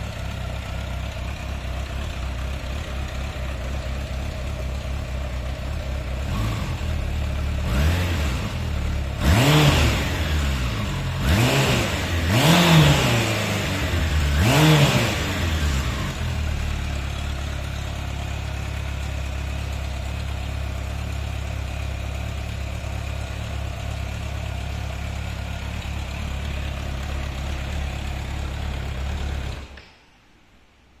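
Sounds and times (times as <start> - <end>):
motorcycle engine idling: 0.0 - 29.9.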